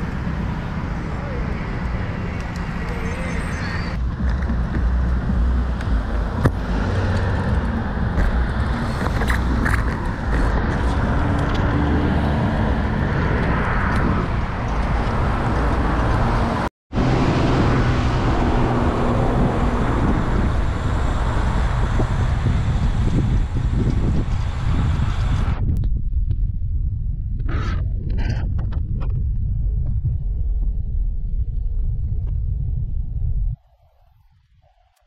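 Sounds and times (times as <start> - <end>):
car engines: 0.0 - 25.6
road traffic noise: 0.0 - 25.6
wind rushing over microphone: 0.0 - 34.9.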